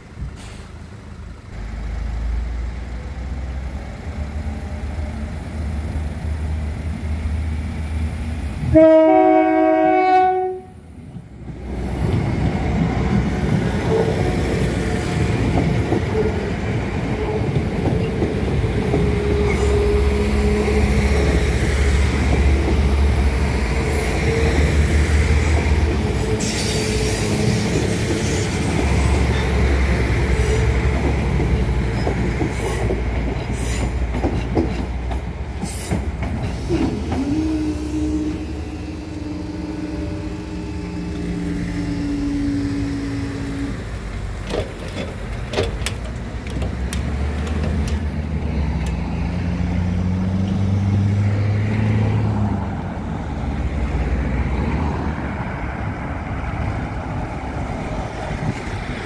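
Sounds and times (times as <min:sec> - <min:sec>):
train engine and wheel rumble: 0:00.0 - 0:59.0
wheels clicking over rail joints: 0:11.0 - 0:38.2, 0:43.4 - 0:49.4.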